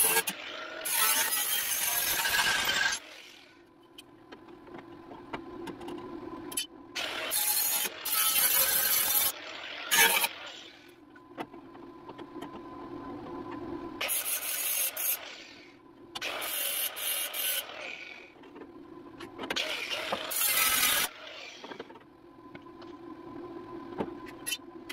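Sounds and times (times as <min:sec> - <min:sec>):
angle grinder grinding metal: 0:00.0 - 0:03.6, 0:07.0 - 0:10.8, 0:16.2 - 0:18.2, 0:19.6 - 0:21.8.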